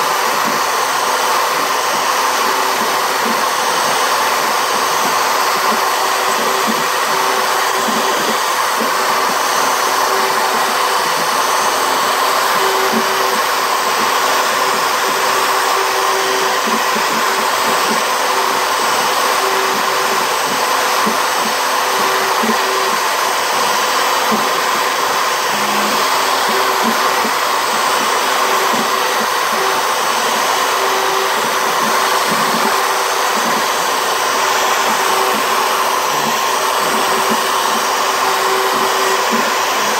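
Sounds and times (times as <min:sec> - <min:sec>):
router spindle cutting wood: 0:00.0 - 0:39.9.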